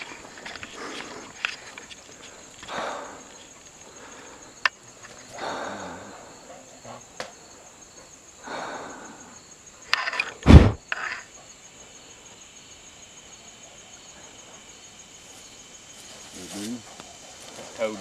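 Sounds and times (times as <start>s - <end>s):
insects trilling: 0.0s - 18.0s
loud low thump: 10.4s - 10.8s
rustles in dry leaves: 15.2s - 18.0s.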